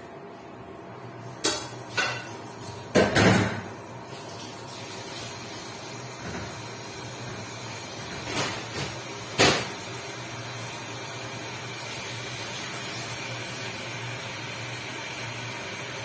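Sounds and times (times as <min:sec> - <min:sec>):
kitchenware clatter: 0:01.4 - 0:03.7, 0:08.0 - 0:09.8
kitchenware knocks on counter: 0:02.9 - 0:03.7.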